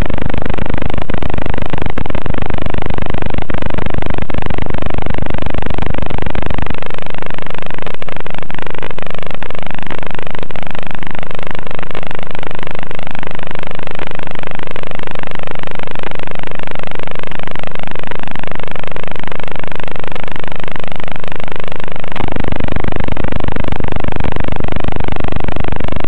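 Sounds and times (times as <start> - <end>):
drone motors buzzing: 22.0 - 26.0.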